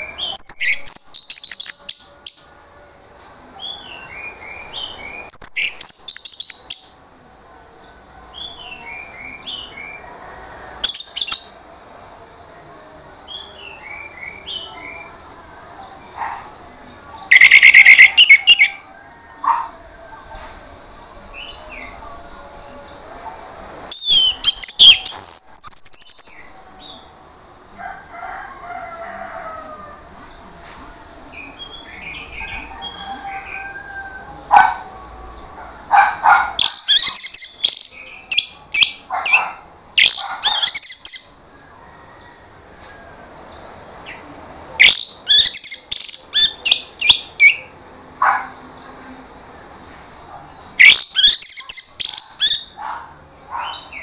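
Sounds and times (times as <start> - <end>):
thrush singing rapid high notes: 17.3 - 18.7.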